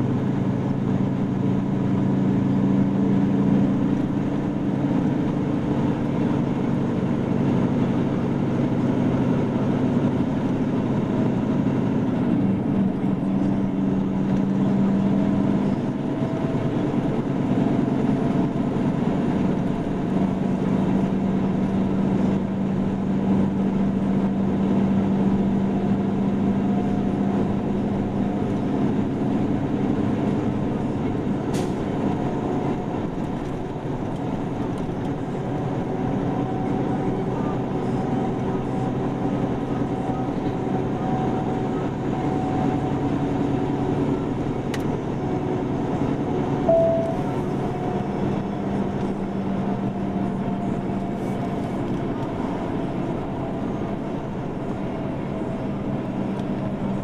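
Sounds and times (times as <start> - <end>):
vehicle engine and road drone: 0.0 - 57.0
short higher tone: 46.6 - 47.6
low hum: 46.6 - 49.3.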